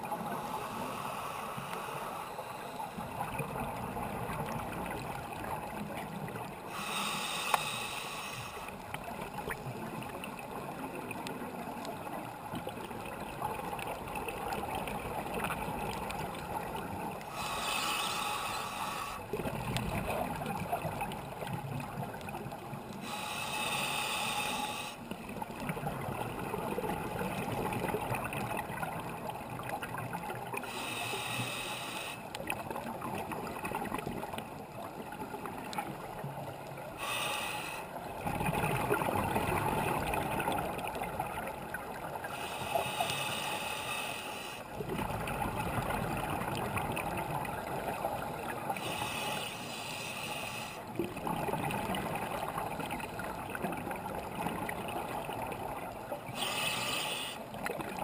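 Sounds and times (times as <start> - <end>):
regulator inhale hiss: 0.1 - 3.1, 6.7 - 8.8, 17.2 - 19.4, 23.0 - 25.2, 30.6 - 32.3, 37.0 - 38.0, 42.2 - 44.7, 48.8 - 50.9, 56.3 - 57.6
exhaled bubbles rumbling: 19.3 - 22.9, 38.0 - 42.3, 44.8 - 48.9, 50.9 - 56.3.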